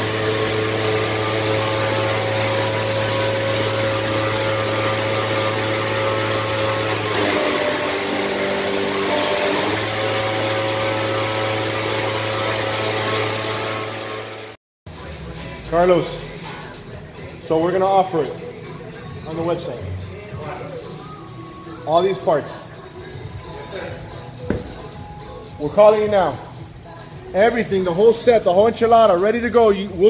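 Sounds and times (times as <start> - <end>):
shop machinery motor hum: 0.0 - 14.3.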